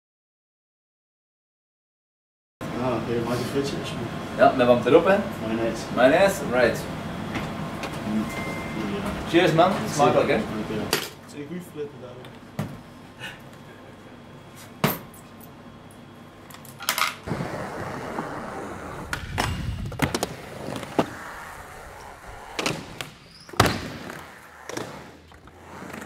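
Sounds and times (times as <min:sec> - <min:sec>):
skateboard rolling on concrete: 0:17.2 - 0:26.0.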